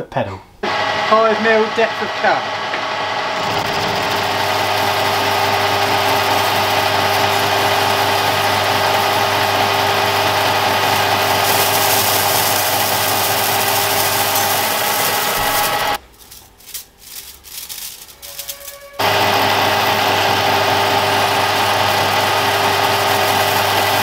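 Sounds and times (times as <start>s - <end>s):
metal lathe cutting: 0.6s - 16.0s, 19.0s - 24.0s
metal chips rattling: 11.4s - 19.0s.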